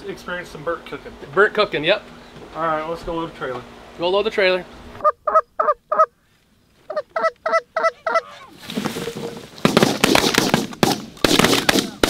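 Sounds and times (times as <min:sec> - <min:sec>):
goose honking: 0:05.0 - 0:06.1, 0:06.9 - 0:08.6
shotgun blasts: 0:09.6 - 0:12.0.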